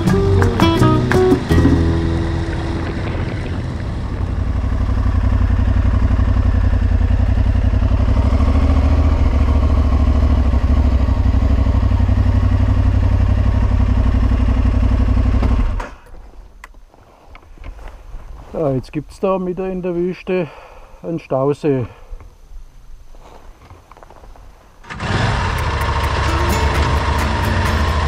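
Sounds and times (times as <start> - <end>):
motorcycle engine running: 0.0 - 15.8, 24.8 - 28.0.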